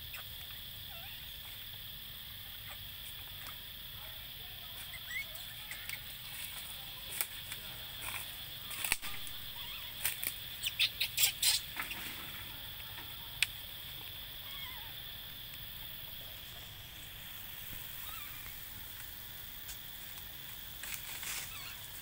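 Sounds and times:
steady high hum: 0.0s - 22.0s
dry leaves crackling and rustling: 4.8s - 10.7s, 16.4s - 22.0s.

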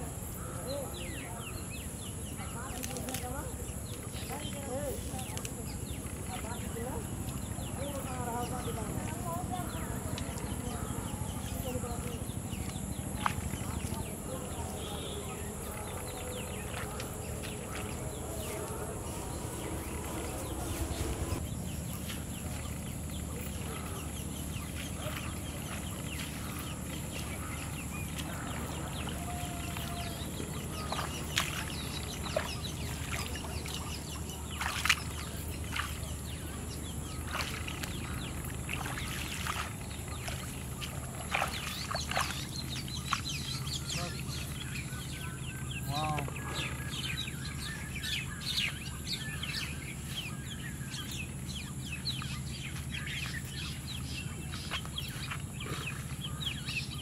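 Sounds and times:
grass rustling: 12.6s - 42.9s.

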